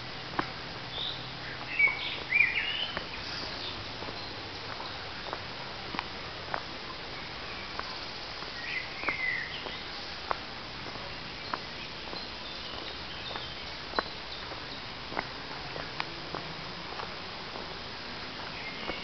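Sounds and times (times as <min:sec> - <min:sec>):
footsteps on dirt trail: 0:00.0 - 0:19.0
steady hiss: 0:00.0 - 0:19.0
bird chirping: 0:00.9 - 0:05.4, 0:07.1 - 0:10.0, 0:10.9 - 0:15.0, 0:18.5 - 0:19.0.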